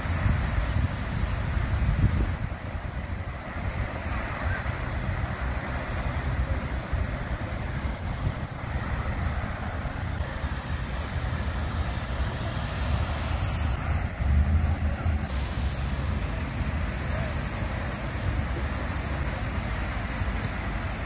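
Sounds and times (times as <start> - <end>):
water fountain splashing: 0.0 - 21.0
wind rumbling on microphone: 0.0 - 21.0
low rumble: 13.5 - 18.6.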